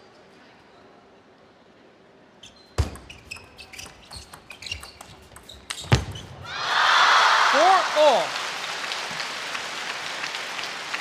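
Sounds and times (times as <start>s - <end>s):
shoe squeaks on floor: 2.4s - 6.4s.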